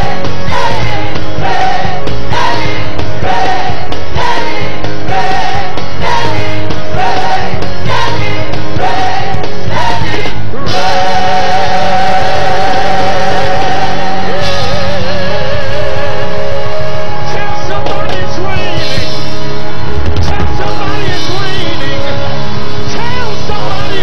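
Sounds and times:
gospel band and singers: 0:00.0 - 0:24.0.

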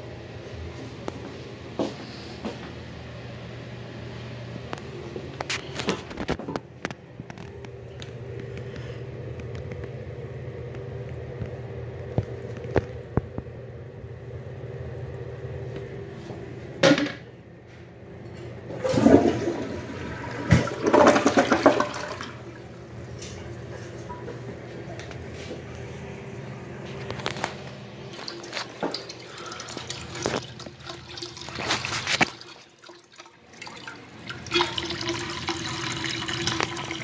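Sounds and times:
toilet flush clunk: 0:18.7 - 0:22.4, 0:33.6 - 0:37.0
water rushing down toilet bowl: 0:18.7 - 0:22.6, 0:28.2 - 0:37.0.

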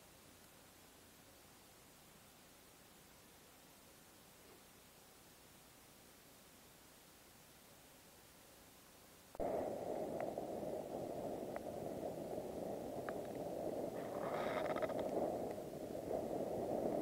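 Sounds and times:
campfire flames rushing: 0:09.4 - 0:17.0
fire crackling: 0:09.4 - 0:17.0.

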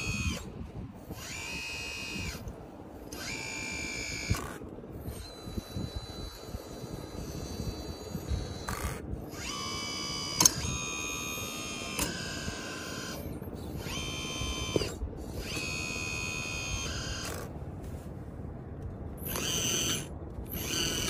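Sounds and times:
hydraulic pump whining: 0:00.0 - 0:17.5, 0:19.2 - 0:21.0
mechanism clicks: 0:10.4 - 0:10.8.

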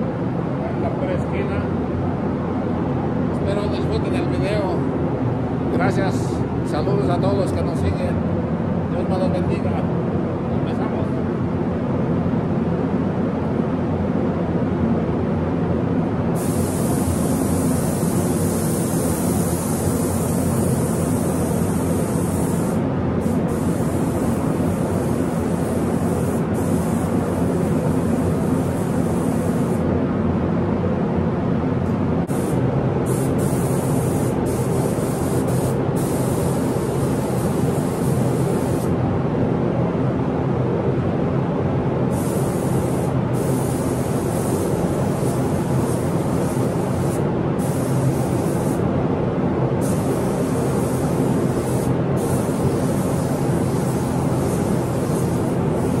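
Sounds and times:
low mechanical hum: 0:00.0 - 0:56.0
low rumble of air equipment: 0:00.0 - 0:56.0
spray gun hissing: 0:16.4 - 0:29.8, 0:32.3 - 0:38.9, 0:42.1 - 0:48.8, 0:49.8 - 0:56.0.

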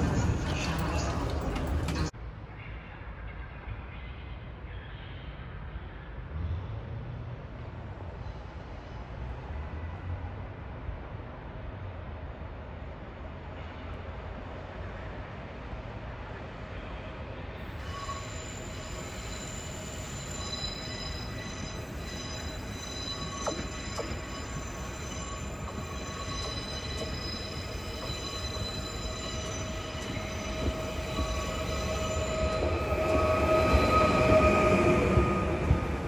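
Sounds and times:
train wheels rumbling: 0:00.0 - 0:02.2, 0:17.6 - 0:36.0
electric train whine and squeal: 0:16.8 - 0:36.0.

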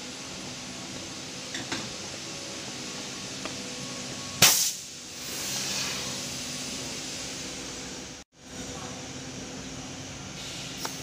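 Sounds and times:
steady machine hum: 0:00.0 - 0:11.0
compressed air hiss: 0:04.4 - 0:07.8, 0:10.3 - 0:11.0.

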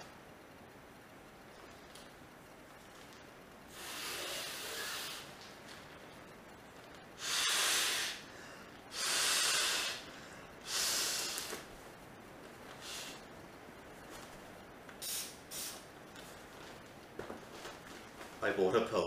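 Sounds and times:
person blowing into inflatable pillow: 0:03.7 - 0:05.3, 0:07.2 - 0:08.2, 0:08.9 - 0:11.6, 0:12.8 - 0:13.2.

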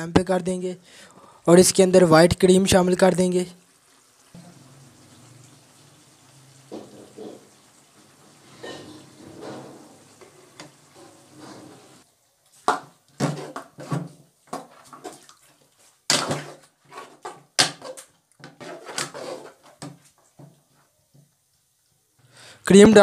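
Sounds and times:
curry sizzling faintly in a pot: 0:00.5 - 0:22.7
metal spoon scraping a pot: 0:08.5 - 0:12.0, 0:16.4 - 0:19.8.

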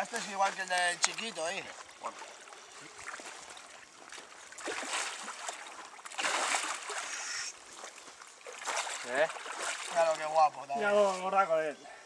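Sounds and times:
fish splashing in water: 0:00.0 - 0:10.4.

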